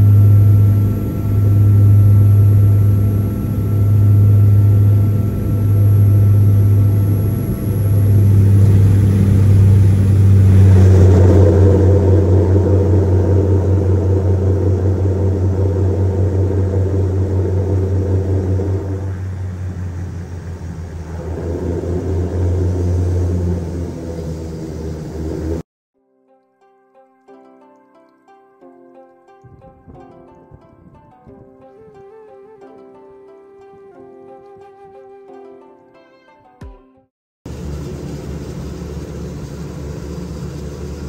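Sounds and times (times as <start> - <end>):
rough rushing noise: 0.0 - 25.6
turboprop engines droning: 0.0 - 25.6, 37.5 - 41.0.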